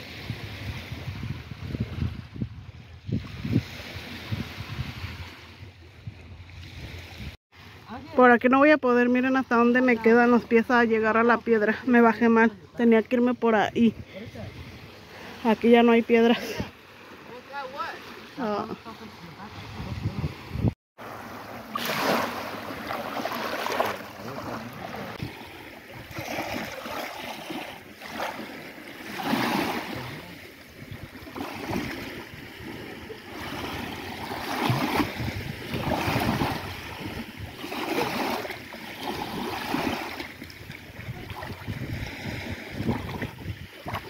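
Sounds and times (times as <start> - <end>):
waves washing over pebbles: 20.3 - 44.0.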